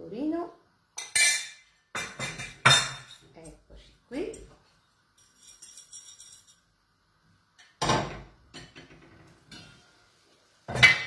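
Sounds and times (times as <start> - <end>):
dishes clinking on counter: 1.0 - 3.2, 7.6 - 9.9.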